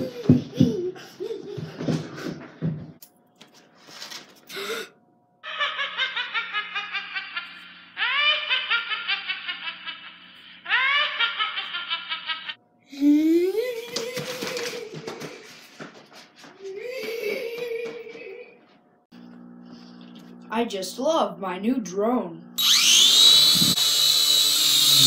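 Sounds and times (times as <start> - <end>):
high-pitched laughter: 5.4 - 12.6, 13.4 - 15.2
person speaking: 20.5 - 22.6.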